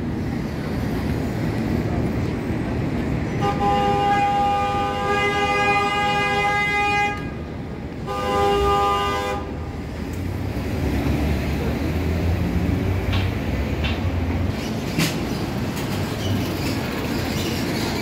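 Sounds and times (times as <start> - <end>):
street traffic rumble: 0.0 - 18.0
vehicle horn blast: 3.4 - 7.4, 8.0 - 9.6.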